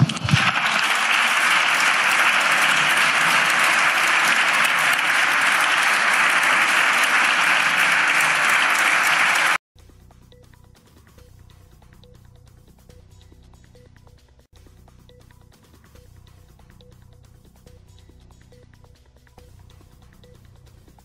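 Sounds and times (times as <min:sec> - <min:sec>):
dense applause: 0:00.0 - 0:09.6.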